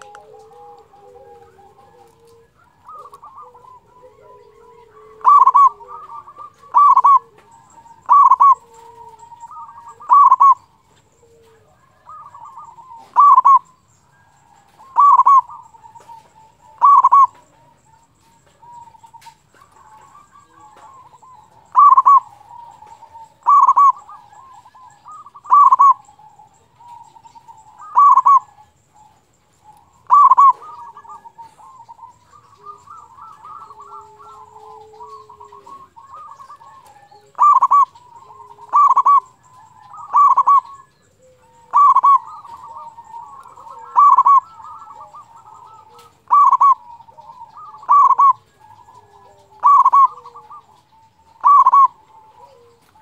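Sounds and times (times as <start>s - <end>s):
dove cooing: 0.0s - 53.0s.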